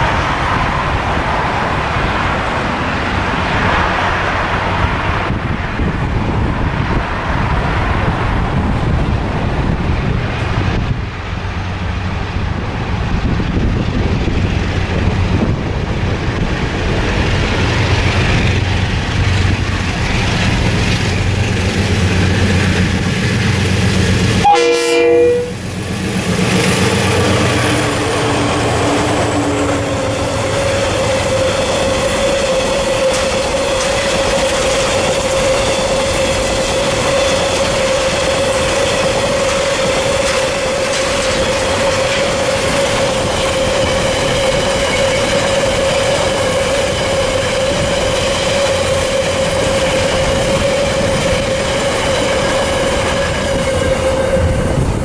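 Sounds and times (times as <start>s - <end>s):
locomotive engine hum: 0.0s - 55.0s
train wheel whine: 0.0s - 55.0s
train horn blast: 24.4s - 25.8s
wagons clickety-clack: 31.9s - 53.6s.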